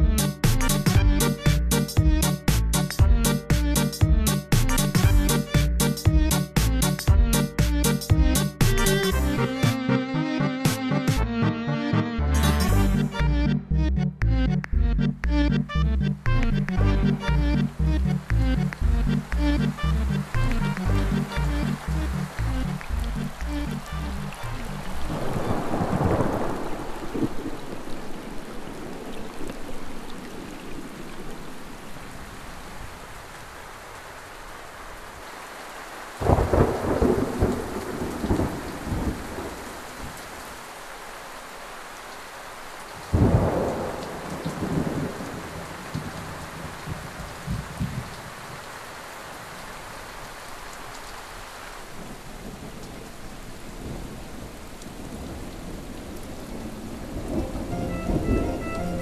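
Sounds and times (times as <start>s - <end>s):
steady rain: 0.0s - 13.6s, 14.5s - 59.0s
music: 0.0s - 25.1s, 57.3s - 59.0s
thunder claps rumbling: 21.1s - 31.9s, 36.2s - 40.2s, 43.1s - 48.6s, 52.0s - 59.0s.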